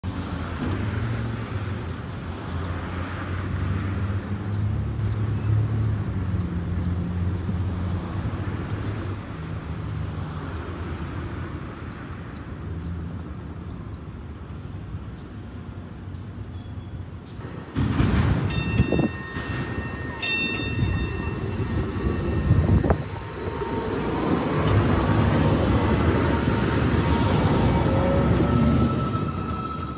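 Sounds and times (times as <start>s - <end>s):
road traffic rumble: 0.0s - 29.9s
engine hums shifting pitch: 20.1s - 29.9s.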